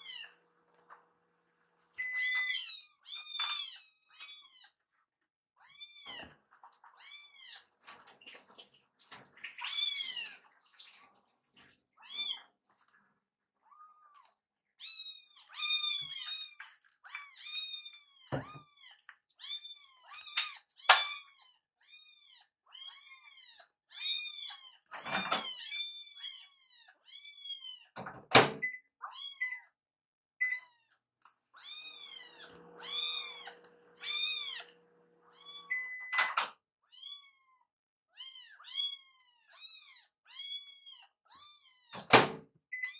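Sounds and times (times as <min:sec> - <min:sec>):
kittens meowing: 0:00.0 - 0:00.4, 0:30.6 - 0:36.1.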